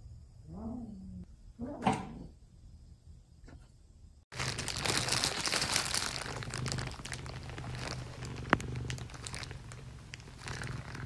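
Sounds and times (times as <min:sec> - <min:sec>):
plastic bag crinkling: 0:04.3 - 0:11.0.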